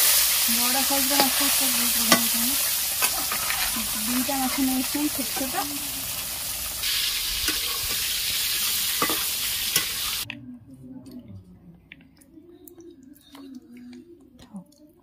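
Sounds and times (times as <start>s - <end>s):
fish sizzling in hot oil: 0.0s - 10.3s.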